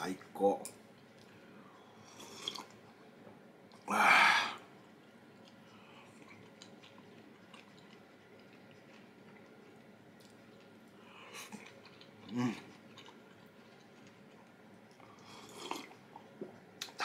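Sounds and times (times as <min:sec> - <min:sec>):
faint chewing clicks: 0:00.7 - 0:01.4, 0:04.7 - 0:17.0.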